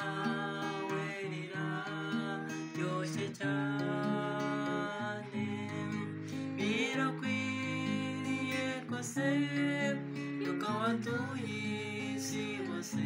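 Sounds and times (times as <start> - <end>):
man singing gospel song: 0.0 - 13.0
strummed acoustic guitar: 0.0 - 13.0.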